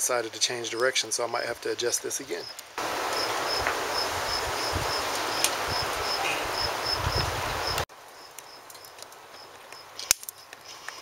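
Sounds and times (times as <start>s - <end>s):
cricket chirping: 2.4s - 10.8s
wind buffeting microphone: 2.8s - 7.8s.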